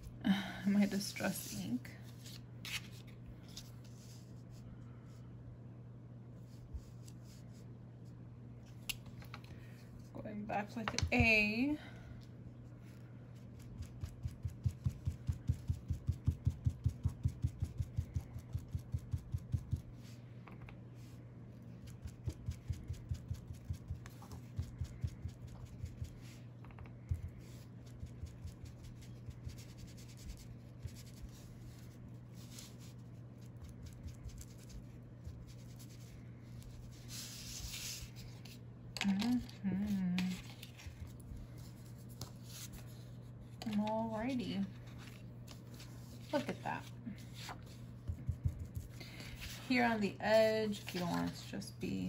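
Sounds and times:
paper rustle: 0:02.0 - 0:04.3.

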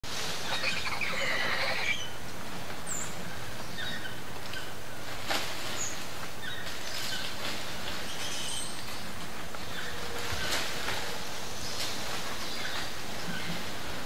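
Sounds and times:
chattering whinny-like animal calls: 0:00.4 - 0:02.1.

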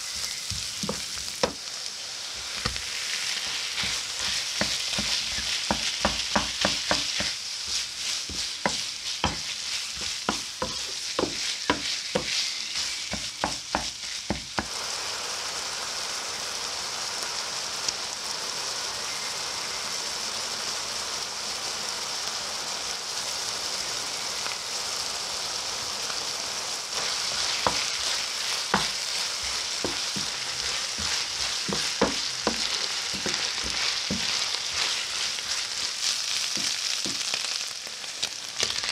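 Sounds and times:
wooden spoon scraping a pan: 0:00.0 - 0:01.6, 0:02.4 - 0:14.7, 0:26.9 - 0:37.6
meat sizzling in a frying pan: 0:00.0 - 0:38.9.

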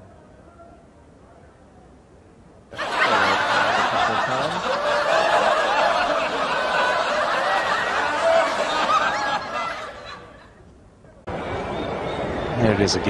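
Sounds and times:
group of people laughing: 0:02.8 - 0:10.6.

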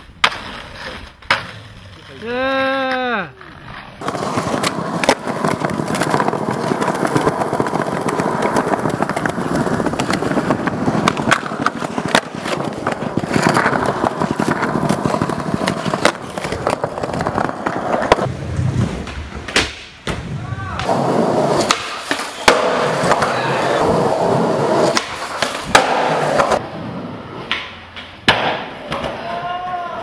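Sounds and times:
skateboard wheels rolling on concrete: 0:00.0 - 0:30.0
skateboard clacks and knocks: 0:04.0 - 0:18.3, 0:20.8 - 0:26.6, 0:27.4 - 0:29.8.

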